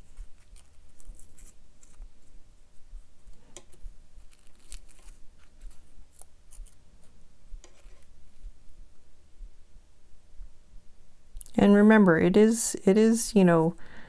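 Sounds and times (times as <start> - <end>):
paper strip rustling and ticking: 0.0 - 2.4, 3.2 - 6.8
low steady hum: 0.0 - 14.0.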